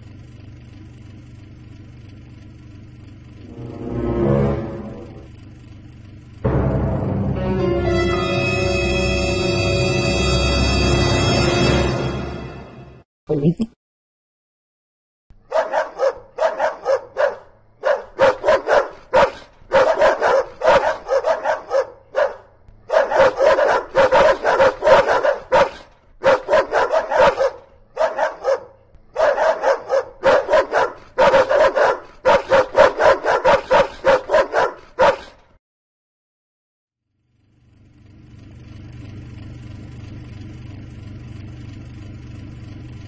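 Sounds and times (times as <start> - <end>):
dog barking rapidly: 15.4 - 35.4.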